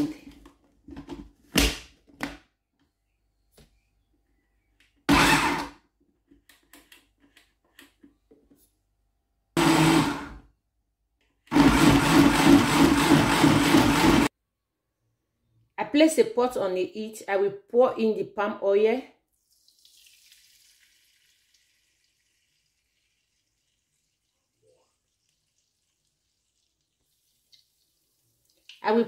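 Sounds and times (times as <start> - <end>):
blender running: 5.1 - 5.7, 9.6 - 10.4, 11.5 - 14.3.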